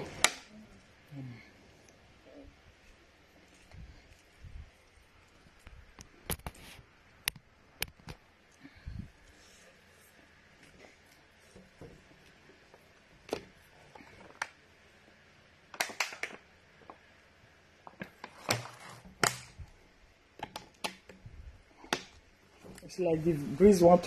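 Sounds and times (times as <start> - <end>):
electric fan humming: 0.0 - 24.0
plastic water bottle handling: 17.9 - 19.7.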